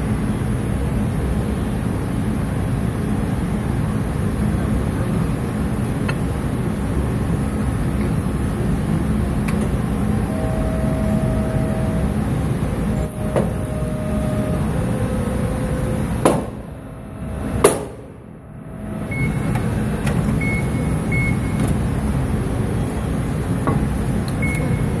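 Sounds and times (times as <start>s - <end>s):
press brake humming: 9.2s - 22.4s.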